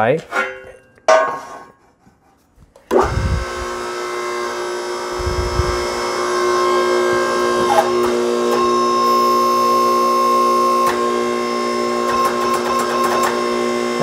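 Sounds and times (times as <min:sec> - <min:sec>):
metallic clank: 0:00.2 - 0:01.7
hydraulic power pack whining: 0:02.7 - 0:14.0
power pack starting thump: 0:02.9 - 0:03.6.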